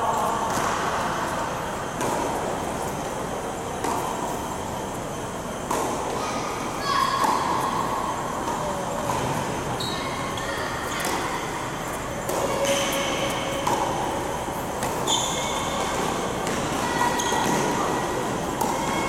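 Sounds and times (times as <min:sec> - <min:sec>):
racket hitting tennis ball: 0:02.0 - 0:02.9, 0:03.8 - 0:04.4, 0:05.6 - 0:06.2, 0:12.2 - 0:19.0
shoes squeaking on court: 0:05.6 - 0:19.0.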